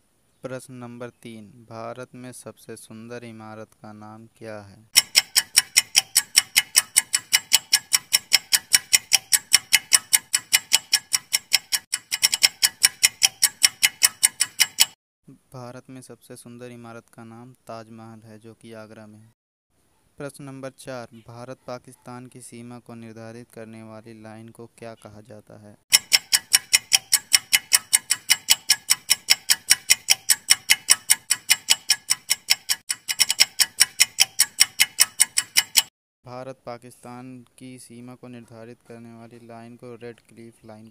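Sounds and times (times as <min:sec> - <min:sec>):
countdown timer ticking: 0:05.0 - 0:15.0, 0:25.9 - 0:35.9.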